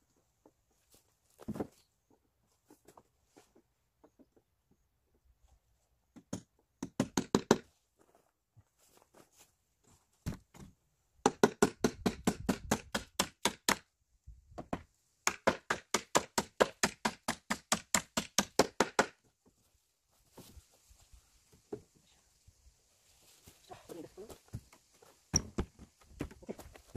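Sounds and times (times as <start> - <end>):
hammer driving nails into wood: 6.2 - 7.7, 14.7 - 19.2.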